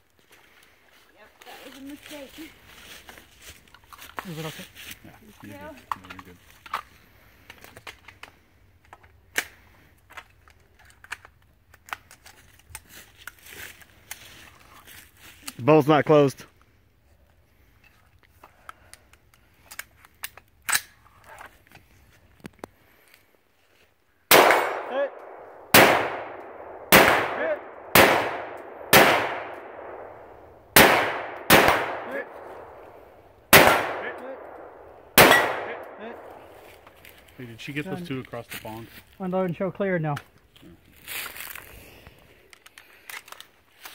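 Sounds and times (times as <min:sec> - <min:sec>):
rifle handling clicks: 0:07.5 - 0:13.4, 0:18.4 - 0:21.8, 0:24.4 - 0:26.8, 0:33.6 - 0:37.4, 0:42.5 - 0:43.9
sharp loud crack: 0:24.3 - 0:29.7, 0:30.8 - 0:32.3, 0:33.5 - 0:34.4, 0:35.2 - 0:36.1
rifle shots: 0:24.3 - 0:36.6
faint echoing report: 0:24.7 - 0:40.0.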